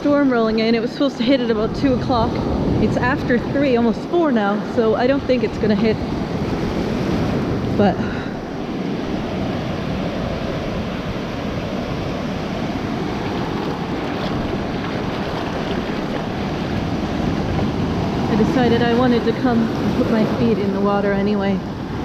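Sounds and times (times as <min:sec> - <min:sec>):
ocean waves breaking: 0:00.0 - 0:22.0.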